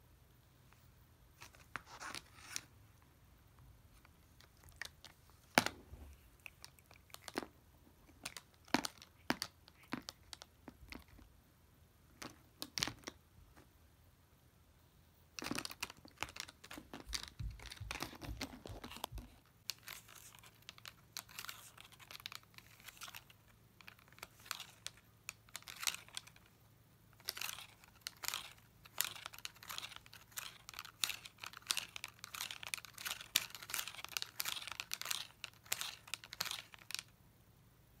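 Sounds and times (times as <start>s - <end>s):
plastic toy crinkling and crunching: 3.9s - 11.3s, 15.4s - 37.2s.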